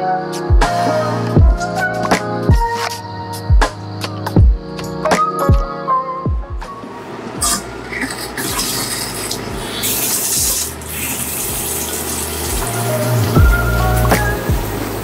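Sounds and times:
faucet water splashing into sink: 0:07.4 - 0:14.7.

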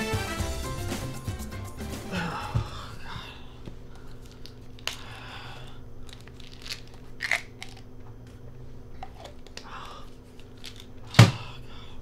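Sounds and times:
low steady hum: 0:01.4 - 0:12.0
crunching: 0:06.0 - 0:07.9.

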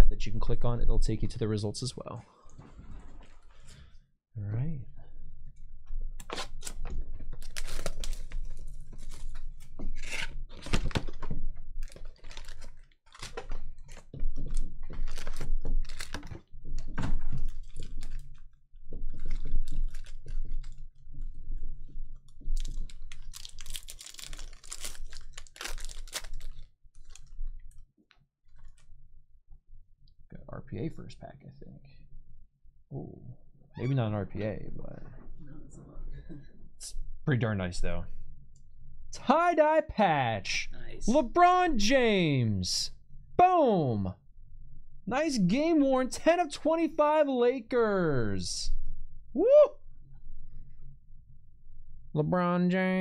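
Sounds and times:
foil packs crinkling: 0:07.4 - 0:09.4, 0:11.8 - 0:14.0, 0:14.9 - 0:16.4, 0:19.2 - 0:20.8, 0:22.6 - 0:27.7
packaging being torn: 0:07.4 - 0:09.4, 0:11.8 - 0:13.5, 0:15.0 - 0:16.3, 0:22.6 - 0:27.7.

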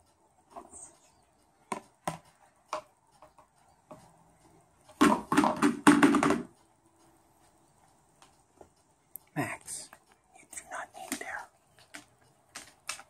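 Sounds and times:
beak knocking plastic frisbee: 0:01.7 - 0:04.0, 0:05.0 - 0:06.5
frisbee clattering on tile floor: 0:05.0 - 0:06.5.

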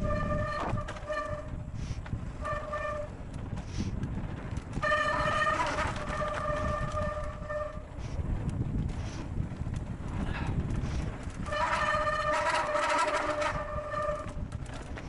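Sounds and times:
bicycle disc brakes squealing: 0:00.0 - 0:03.2, 0:04.8 - 0:08.2, 0:10.8 - 0:14.5
low rumble of riding on trail: 0:00.0 - 0:15.0.

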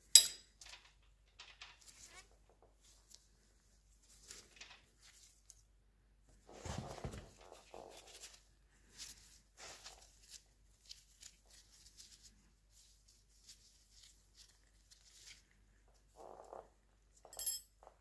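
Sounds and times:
handling bump and rustle: 0:06.4 - 0:08.3.

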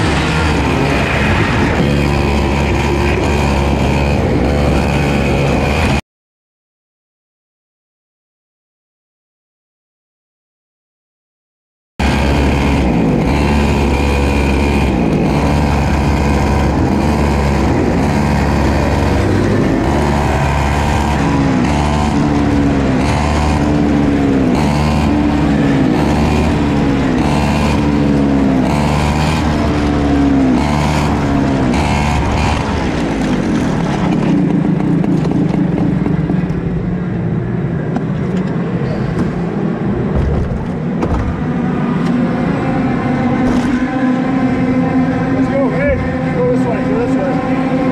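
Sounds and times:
kart engines passing at full throttle: 0:00.0 - 0:06.0, 0:12.0 - 0:47.9.

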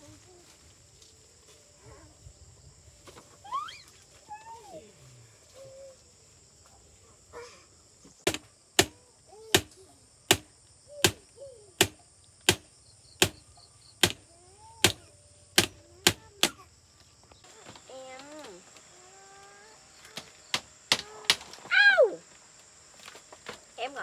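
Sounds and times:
high insect drone: 0:00.0 - 0:24.0
hammer striking bamboo frame: 0:08.3 - 0:11.2, 0:11.8 - 0:13.4, 0:14.0 - 0:16.6, 0:20.1 - 0:21.6.

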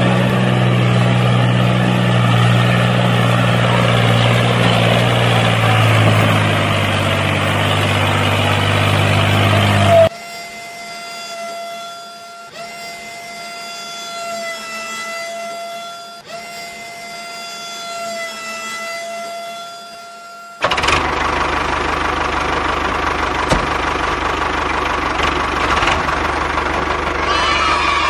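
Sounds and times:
loud rumbling engine-like noise: 0:00.0 - 0:11.3, 0:20.6 - 0:28.0
small electric motor whining: 0:00.0 - 0:24.5, 0:25.1 - 0:28.0.

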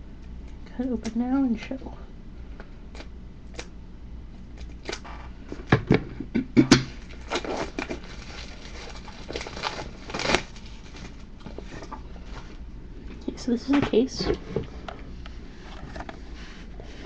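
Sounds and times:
plastic wrapping crinkling: 0:06.9 - 0:13.2.

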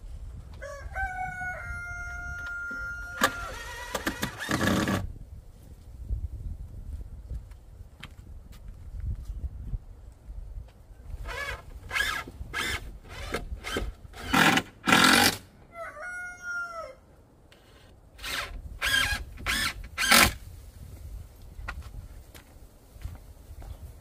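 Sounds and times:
cordless drill driving screws: 0:03.2 - 0:05.0, 0:11.2 - 0:15.4, 0:17.6 - 0:20.4.

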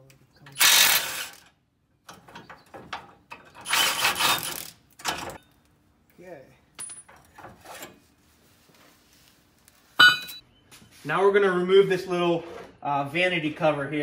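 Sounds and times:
metal tools clattering on concrete: 0:06.8 - 0:07.6, 0:10.0 - 0:10.4.

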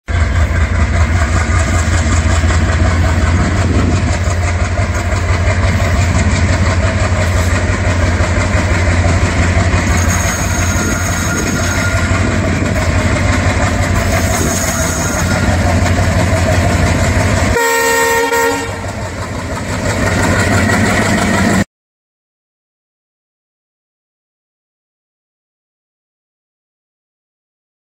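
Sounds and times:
diesel locomotive engine throbbing: 0:00.1 - 0:21.7
train horn blast: 0:17.5 - 0:19.0.

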